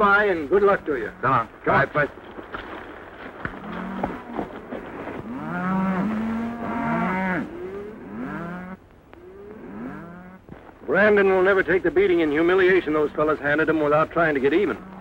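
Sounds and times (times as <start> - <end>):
cattle mooing: 3.6 - 10.4, 14.5 - 15.0.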